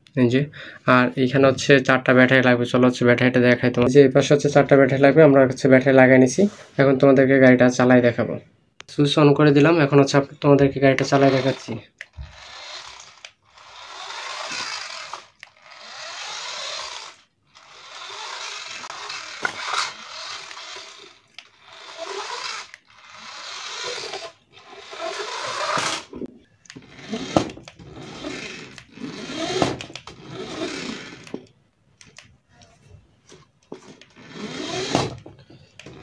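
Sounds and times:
toy car electric motor running: 11.0s - 31.4s, 34.0s - 36.0s.

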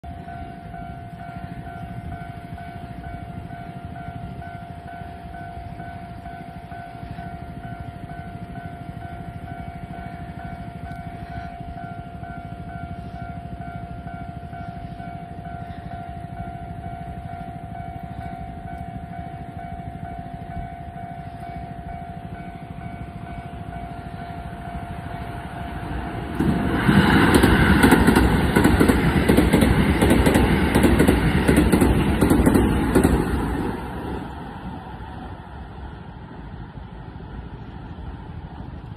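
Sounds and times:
level-crossing alarm bell: 0.0s - 26.0s
train rushing past: 0.1s - 38.9s
train wheels clicking on rail joints: 0.2s - 34.8s.

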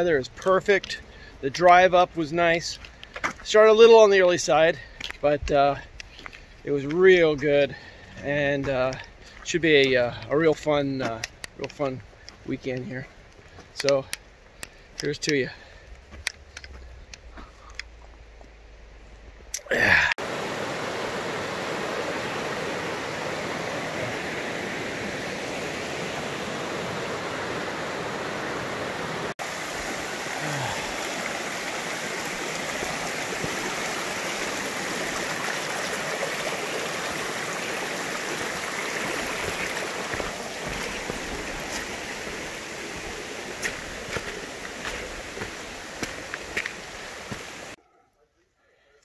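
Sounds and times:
stream water rushing: 19.6s - 47.8s.

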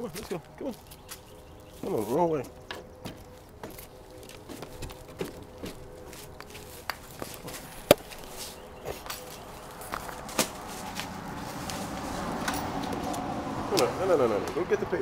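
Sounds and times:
footsteps: 0.0s - 13.3s.

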